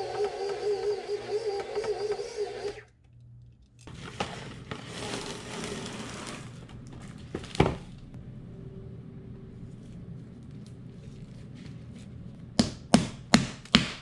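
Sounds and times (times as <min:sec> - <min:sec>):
stand mixer motor humming: 0:00.0 - 0:02.9
cling wrap crackling: 0:09.5 - 0:12.6.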